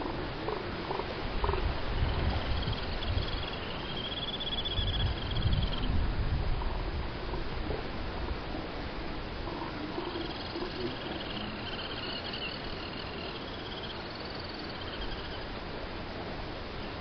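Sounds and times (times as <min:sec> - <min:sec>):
elephant seal calls: 0:00.0 - 0:05.9, 0:09.4 - 0:15.5
wind: 0:00.0 - 0:17.0.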